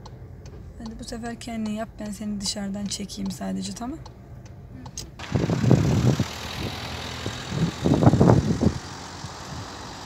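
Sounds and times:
car engine running: 0.0 - 10.0
outdoor traffic noise: 0.0 - 10.0
loud low rumbles: 5.2 - 10.0.

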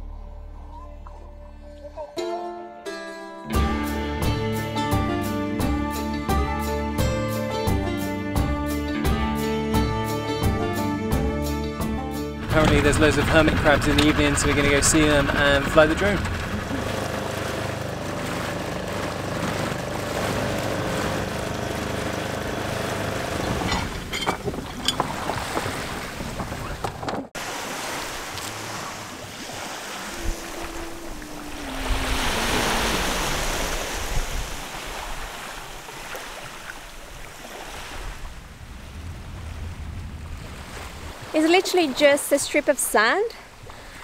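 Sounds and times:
outboard motor running: 12.4 - 37.6
water rushing along boat: 12.4 - 44.0
wind: 12.4 - 44.0
small waves on shore: 12.5 - 44.0.

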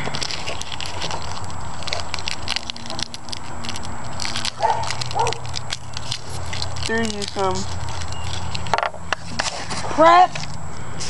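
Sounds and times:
candy wrappers crinkling and tearing: 0.0 - 10.6
steady low hum: 0.0 - 11.0.

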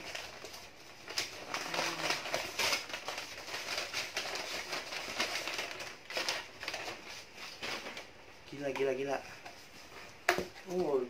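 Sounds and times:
packing paper rustling: 0.0 - 11.0
man humming: 1.5 - 2.3.

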